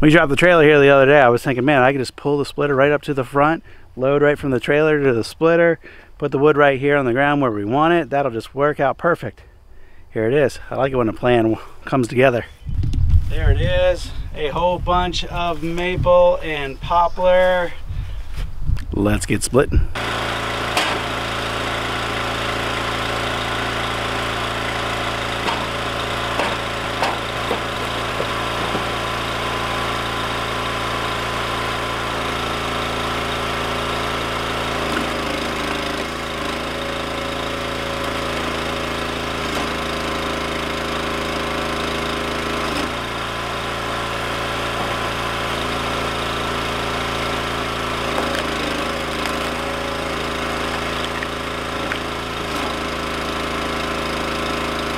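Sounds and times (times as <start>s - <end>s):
log splitter engine running: 20.0s - 54.9s
logs knocking: 25.4s - 29.0s.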